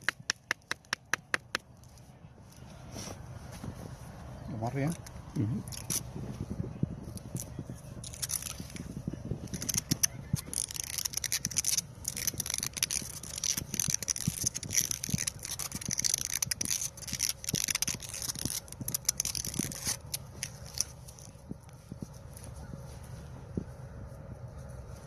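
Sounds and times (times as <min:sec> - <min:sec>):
tape rasping off roll: 0:08.0 - 0:21.4.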